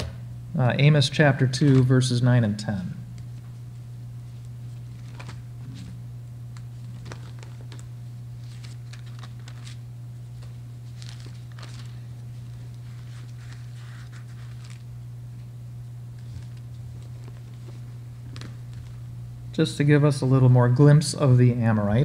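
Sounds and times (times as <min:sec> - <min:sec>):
steady low hum: 0:00.0 - 0:22.0
book pages rustling: 0:03.2 - 0:06.0, 0:06.6 - 0:15.5, 0:16.1 - 0:19.1.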